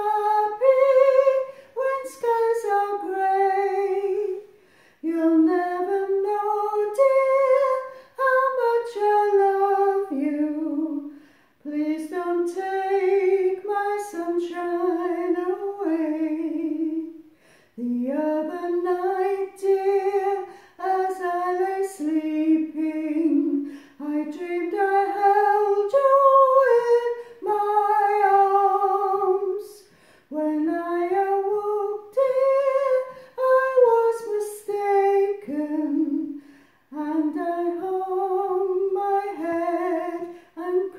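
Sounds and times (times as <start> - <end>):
woman singing unaccompanied: 0.0 - 40.9
singer breathing: 4.5 - 5.0, 11.1 - 11.6, 17.2 - 17.8, 20.5 - 20.8, 23.6 - 24.0, 29.8 - 30.3, 36.3 - 36.9.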